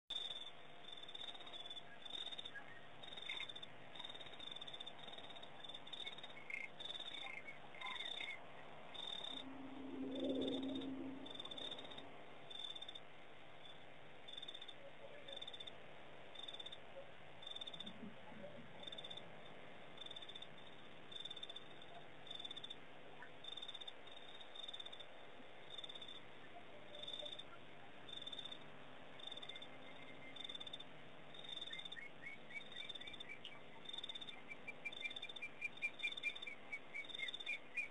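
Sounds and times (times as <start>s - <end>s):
frog-like calls: 0.1s - 13.0s, 14.3s - 37.9s
crickets chirping: 0.1s - 37.9s
low animal call: 7.2s - 12.0s.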